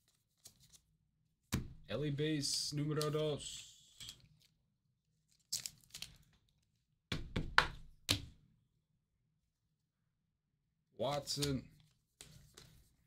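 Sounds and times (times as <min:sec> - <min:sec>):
trading cards sliding and tapping: 0:12.2 - 0:12.8.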